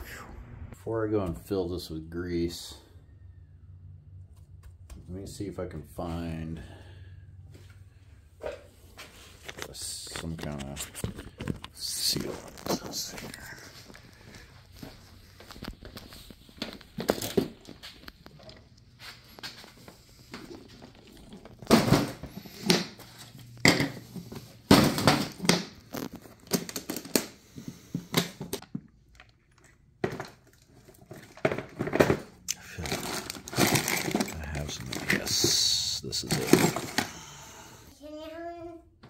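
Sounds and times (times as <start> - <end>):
plastic bags crinkling: 10.2 - 18.6, 24.8 - 27.4, 30.4 - 37.1.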